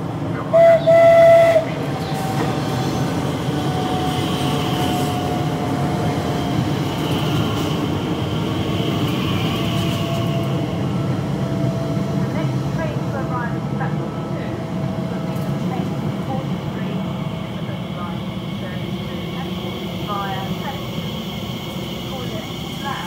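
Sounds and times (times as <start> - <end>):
train rumbling past: 0.0 - 23.0
train horn blasts: 0.5 - 1.8.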